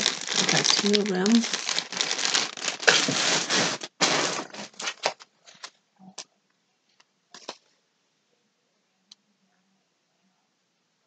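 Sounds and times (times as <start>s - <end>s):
packaging crinkling: 0.0s - 5.7s.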